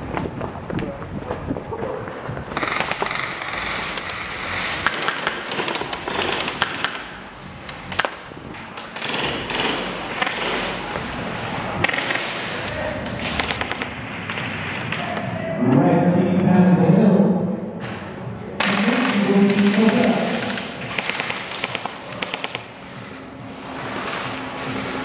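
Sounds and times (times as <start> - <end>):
airsoft guns firing: 2.6 - 7.2, 8.8 - 10.9, 11.8 - 15.3, 18.6 - 22.8.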